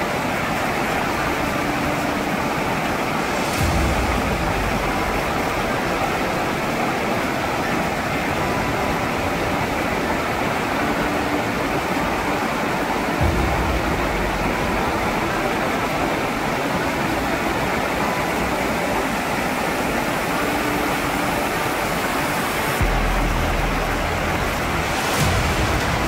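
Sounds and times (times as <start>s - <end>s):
waterfall rushing: 0.0s - 26.0s
deep low rumble: 3.6s - 6.5s, 13.2s - 15.9s, 22.8s - 26.0s.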